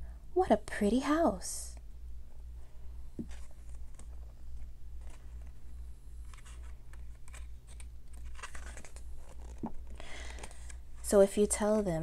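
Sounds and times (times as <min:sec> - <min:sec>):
steady low hum: 0:00.0 - 0:12.0
book pages turning: 0:03.2 - 0:11.1.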